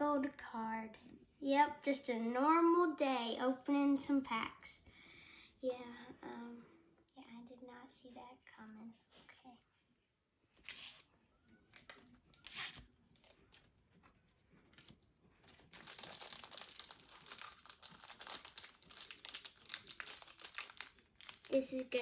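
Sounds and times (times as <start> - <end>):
foil wrapper crinkling and tearing: 14.7 - 22.0.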